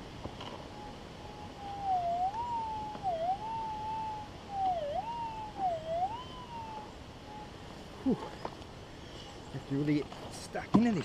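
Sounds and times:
metal detector hum dipping in pitch: 0.7s - 7.5s.

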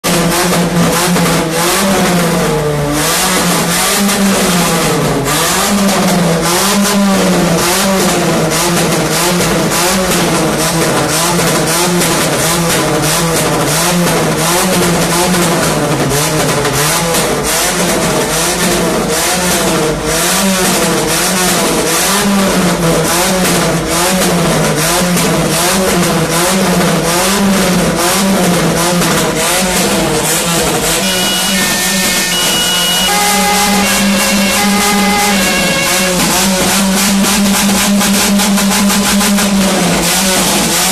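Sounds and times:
car engine revving: 0.0s - 40.9s.

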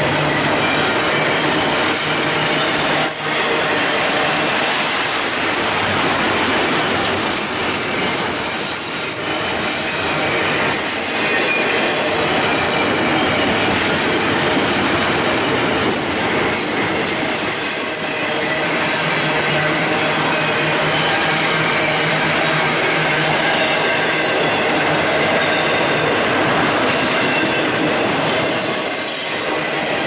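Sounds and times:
freight train wheels rumbling on rails: 0.0s - 30.0s.

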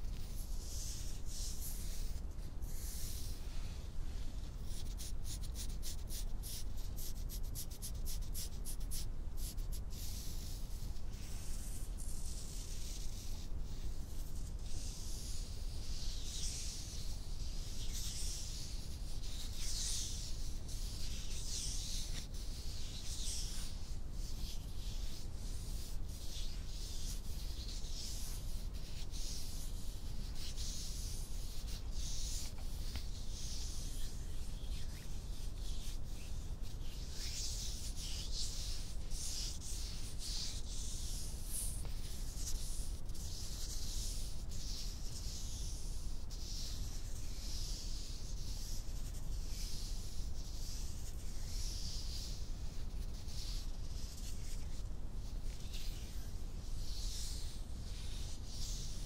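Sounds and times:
hands rubbing skin: 21.3s - 44.3s.

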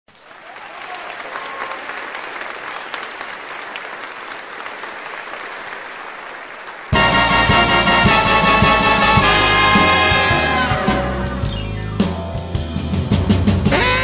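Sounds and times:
audience applauding: 0.1s - 10.8s.

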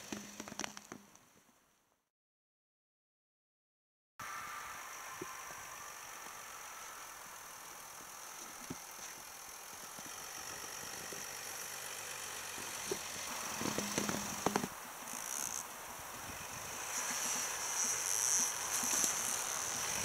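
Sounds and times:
diesel engine running at low revs: 5.2s - 14.7s.

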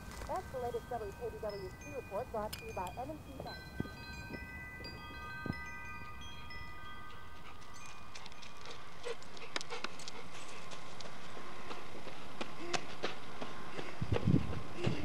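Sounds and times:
wind chimes ringing: 0.0s - 9.0s.

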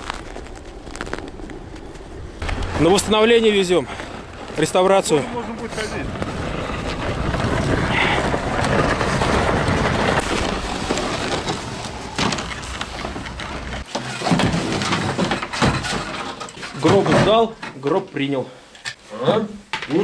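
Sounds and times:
coffin dragged over snow: 0.0s - 13.9s.

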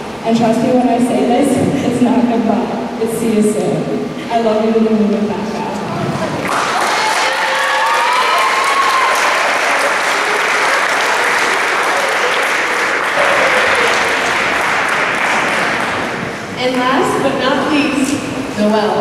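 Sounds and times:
voices calling out: 5.8s - 17.4s
audience applauding: 6.4s - 16.8s.

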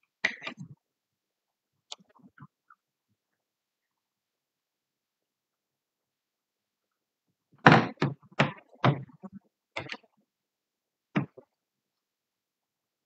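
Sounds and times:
thumps and knocks: 7.6s - 10.2s, 11.1s - 11.5s.

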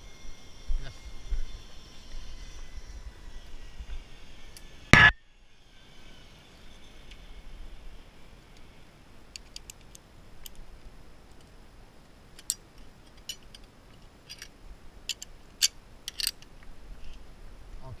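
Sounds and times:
metal carabiners clicking: 12.4s - 14.5s, 15.1s - 16.5s.

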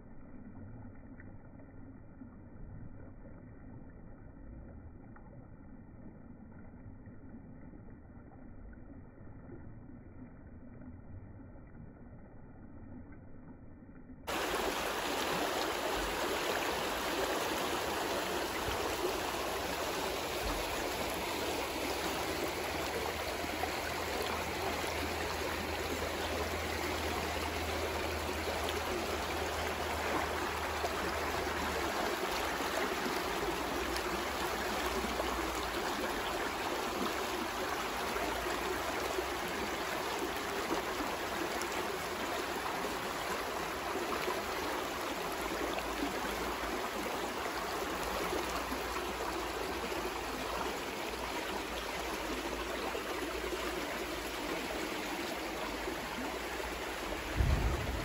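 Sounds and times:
stream flowing over rocks: 14.3s - 58.0s.

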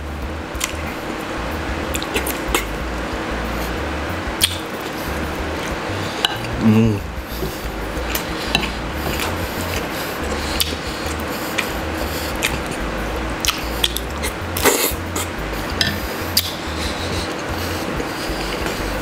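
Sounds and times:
wet chewing and mouth smacks: 1.9s - 2.7s, 4.4s - 6.6s, 7.4s - 12.8s, 13.4s - 17.8s.

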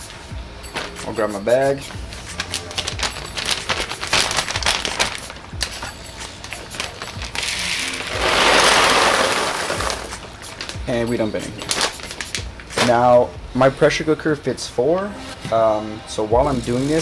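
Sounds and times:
plastic bag rustling: 2.1s - 13.2s
pellets shifting in plastic bowl: 6.6s - 10.7s.

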